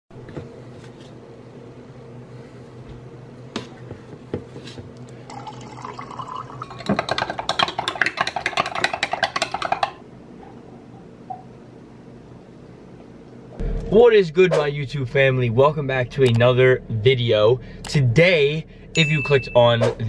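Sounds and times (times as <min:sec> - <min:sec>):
water poured into a glass: 0:05.3 - 0:07.0
plastic scoop tapping: 0:06.8 - 0:10.0.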